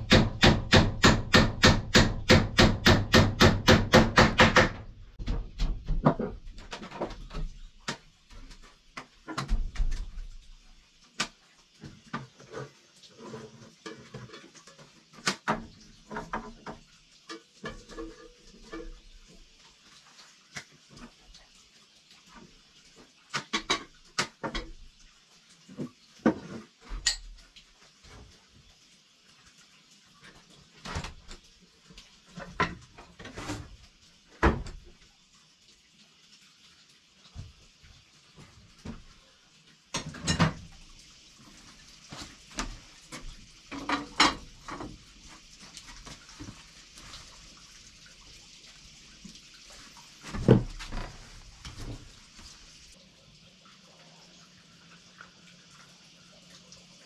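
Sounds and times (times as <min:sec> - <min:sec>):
irregular knocks and clatter: 0:00.0 - 0:10.3, 0:13.3 - 0:19.3, 0:42.1 - 0:47.2, 0:50.3 - 0:52.1.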